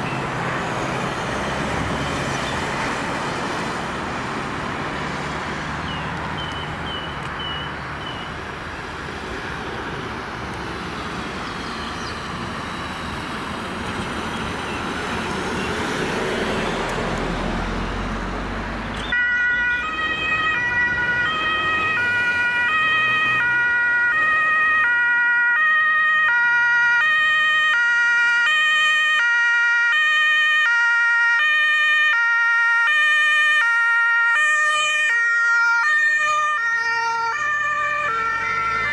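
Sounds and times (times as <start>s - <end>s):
road traffic passing: 0.0s - 38.9s
two-tone emergency siren: 19.1s - 38.9s.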